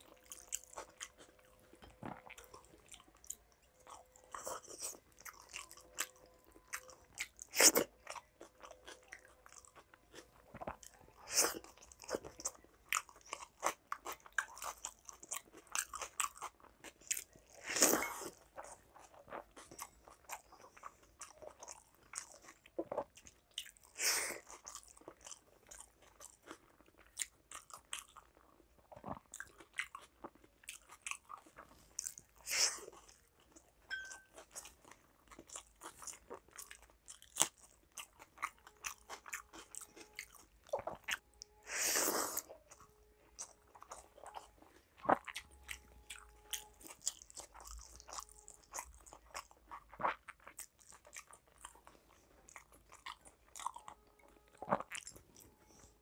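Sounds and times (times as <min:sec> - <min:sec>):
chewing and crunching: 0:00.0 - 0:56.0.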